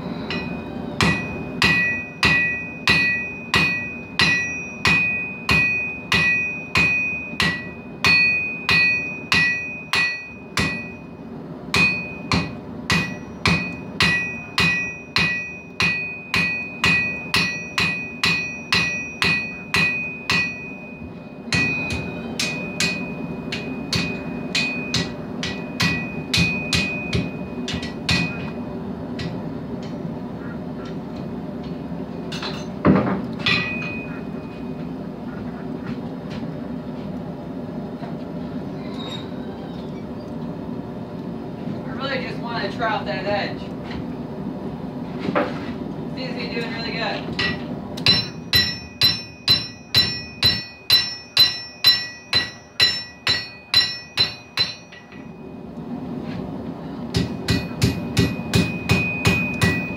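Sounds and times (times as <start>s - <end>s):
hammer blows on steel anvil: 47.4s - 55.3s.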